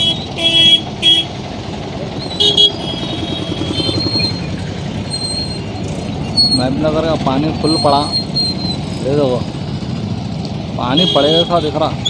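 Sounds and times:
vehicle horns tooting: 0.0 - 1.4, 2.2 - 4.5, 10.9 - 12.0
street traffic rumble: 0.0 - 12.0.

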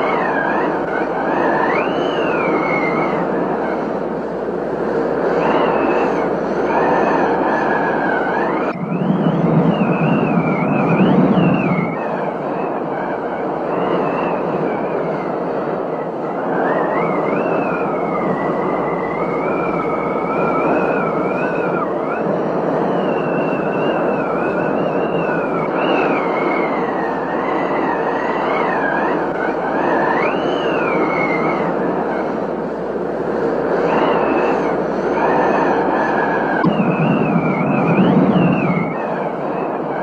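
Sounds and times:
high wavering whistle: 0.0 - 3.9, 5.2 - 32.4, 33.7 - 40.0
rain and wind rushing: 36.6 - 39.6.

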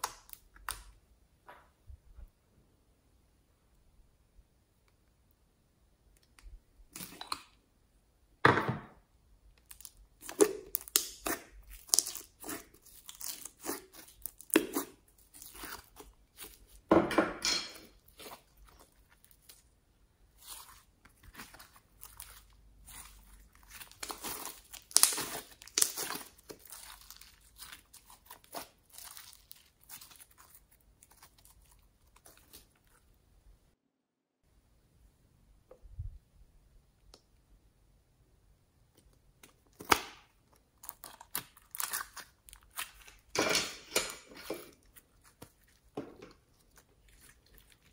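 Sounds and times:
slime stretching sticky crackling: 9.6 - 16.9, 17.9 - 33.2, 39.4 - 43.4.

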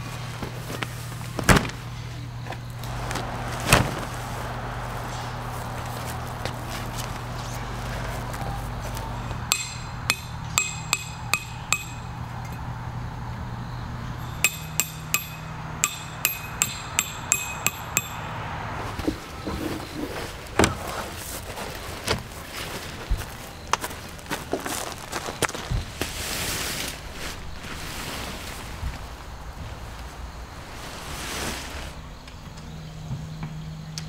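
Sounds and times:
hammer striking tent peg: 9.4 - 12.2, 14.2 - 18.3.

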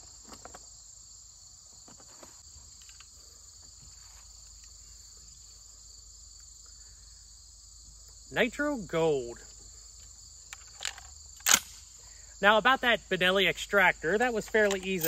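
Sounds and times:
crickets and insects chirping: 0.0 - 15.0.

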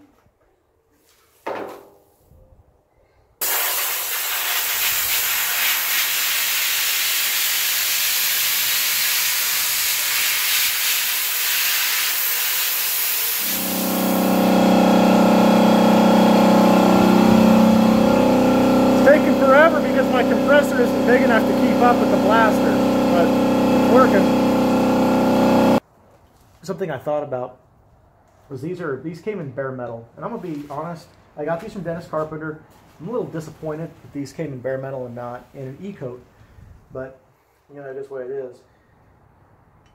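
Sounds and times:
air compressor humming: 3.4 - 25.8
sandblaster hissing: 3.4 - 25.8.

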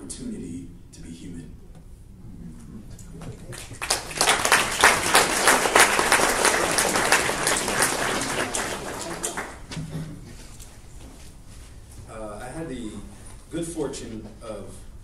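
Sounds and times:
audience applauding: 3.4 - 9.8.

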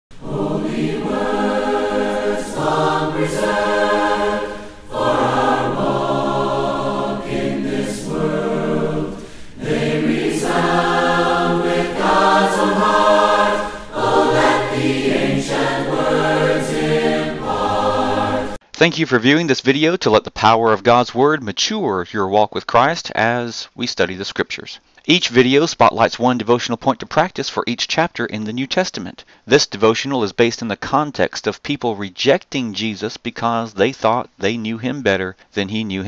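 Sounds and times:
choir singing a hymn: 0.1 - 18.6.

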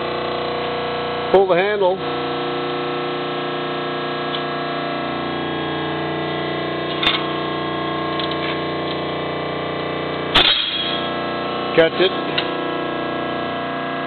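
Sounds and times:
hydraulic pump whining: 0.0 - 14.0
sharp crack: 10.3 - 11.1
metal shear cutting plate: 10.4 - 11.2.

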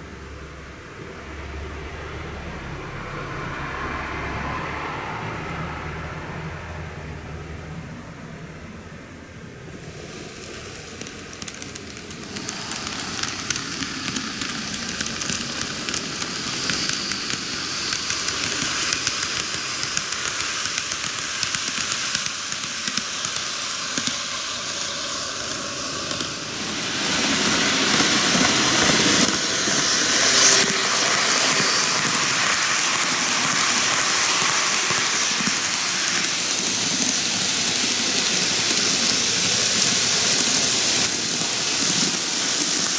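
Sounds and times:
model train wheels rattling on rails: 9.8 - 42.9.

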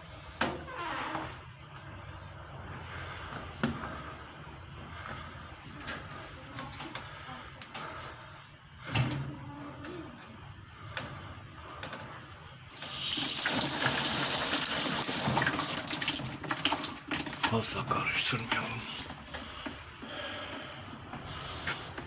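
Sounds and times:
water running: 12.7 - 19.1.

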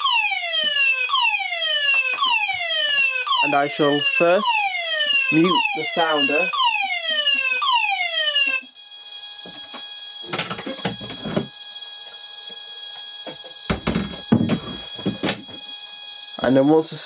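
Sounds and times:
fire alarm wailing: 0.0 - 17.0
knocks and rustles: 9.5 - 11.5, 13.3 - 15.6.

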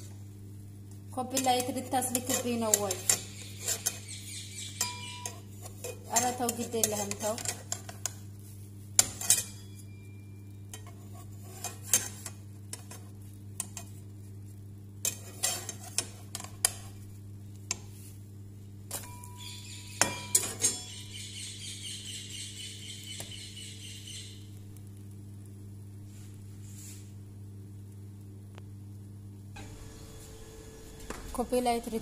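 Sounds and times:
metal spatula scraping frying pan: 1.3 - 4.1, 4.8 - 8.1, 9.0 - 9.8, 10.7 - 13.0, 15.0 - 16.8, 20.0 - 20.9
continuous high-pitched tone: 9.4 - 10.6.

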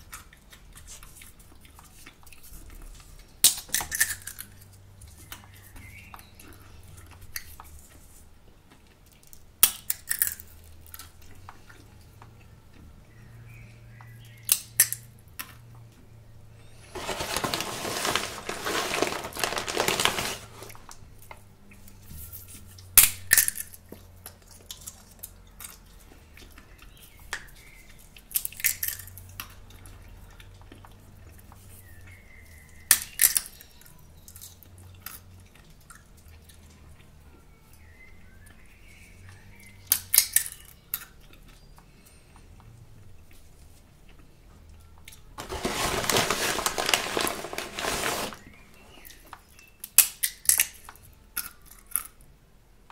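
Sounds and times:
seed shells cracking: 3.4 - 4.8, 9.2 - 11.2, 14.5 - 15.5, 16.9 - 21.0, 23.0 - 25.8, 28.2 - 29.5, 32.9 - 35.2, 39.9 - 41.2, 45.4 - 52.2
plastic packet crinkling: 16.9 - 21.0, 45.4 - 49.2.

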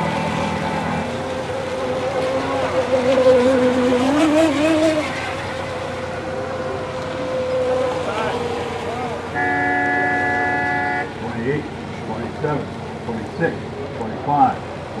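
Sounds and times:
lower wavering motor whine: 0.0 - 13.9
high motor whine: 0.0 - 15.0.

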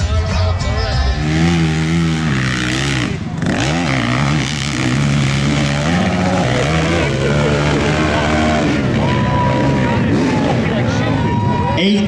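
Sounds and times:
music: 0.0 - 1.2
dirt bike engine revving: 0.8 - 11.8.

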